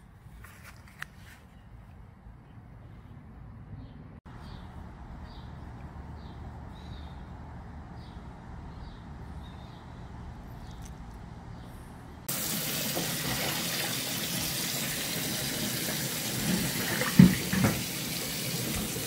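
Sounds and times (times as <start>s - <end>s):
tap water running: 12.3s - 19.0s.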